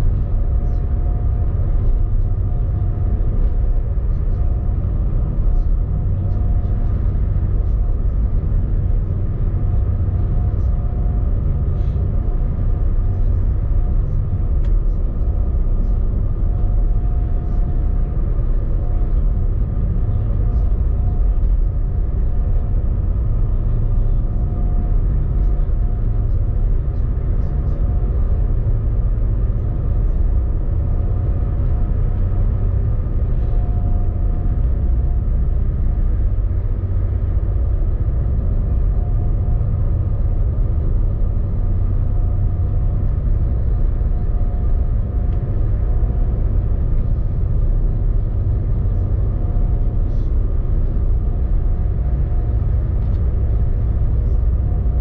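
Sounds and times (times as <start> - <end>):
engine rumbling: 0.0 - 55.0.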